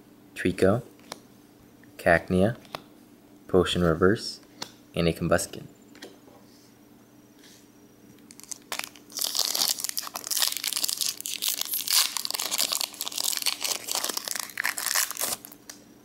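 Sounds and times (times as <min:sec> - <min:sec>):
foil wrapper crinkling: 0:08.3 - 0:15.8.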